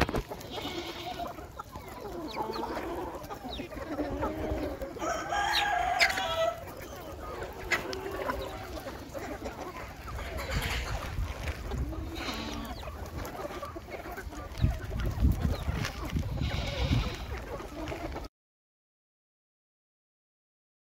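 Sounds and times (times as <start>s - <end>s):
chickens clucking: 0.0s - 18.3s
rooster crowing: 5.0s - 6.6s.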